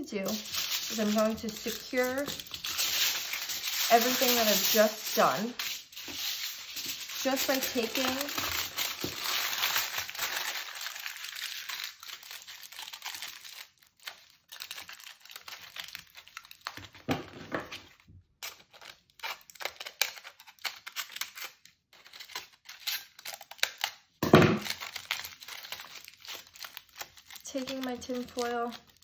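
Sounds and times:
aluminium foil crinkling: 0:00.0 - 0:29.0.

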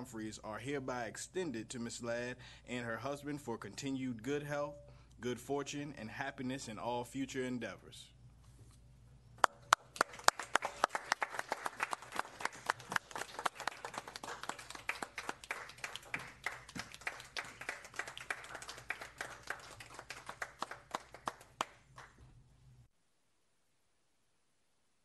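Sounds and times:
people applauding: 0:09.4 - 0:22.2.

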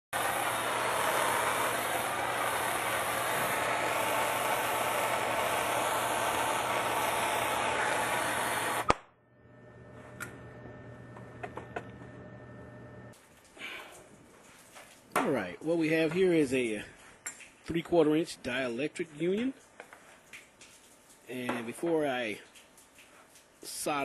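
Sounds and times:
gas torch hissing: 0:00.1 - 0:09.0
torch shut-off click: 0:00.2 - 0:09.1.

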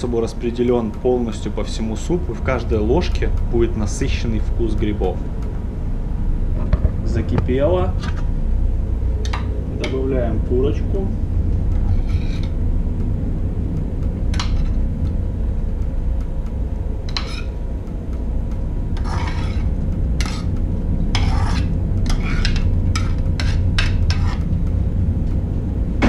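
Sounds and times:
low hum: 0:00.0 - 0:26.0
utensil scraping a pot: 0:11.8 - 0:12.6, 0:17.1 - 0:17.6, 0:19.0 - 0:24.5.

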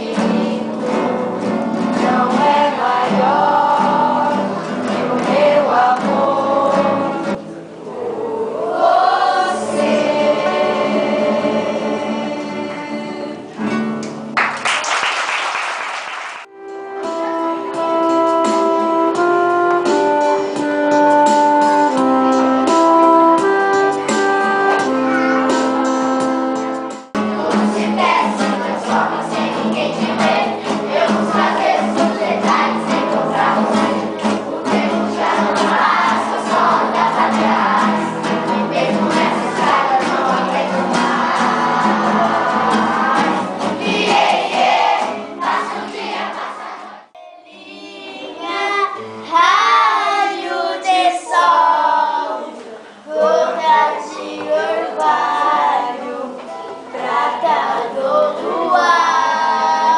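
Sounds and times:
children singing: 0:00.0 - 0:13.6, 0:24.1 - 0:59.9
classical guitars: 0:00.0 - 0:14.8, 0:16.5 - 0:47.1
electronic keyboard melody: 0:16.5 - 0:27.2.

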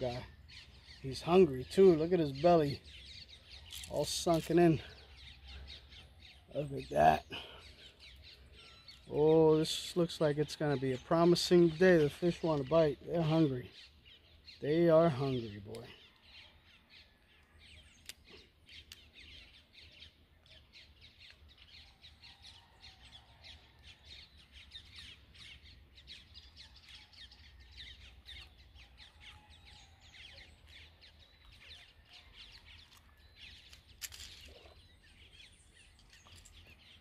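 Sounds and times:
birds chirping: 0:00.0 - 0:37.0.

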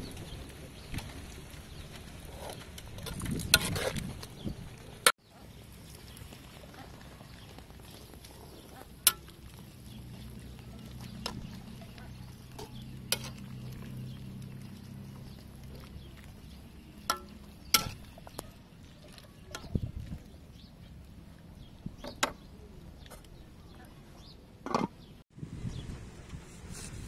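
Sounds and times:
metal ladle clinking in pot: 0:17.0 - 0:18.3.

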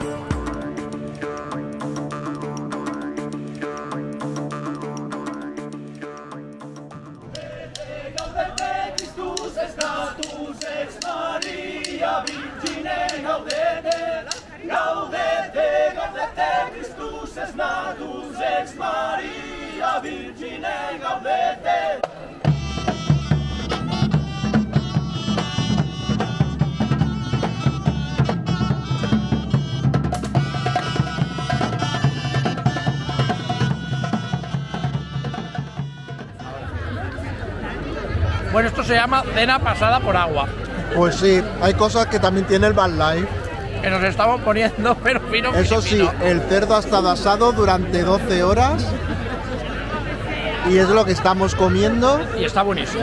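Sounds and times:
hand drum: 0:00.0 - 0:14.4, 0:22.0 - 0:37.2
large drums beating steadily: 0:00.0 - 0:14.5, 0:22.0 - 0:36.9
pipes playing a melody: 0:22.5 - 0:36.8.

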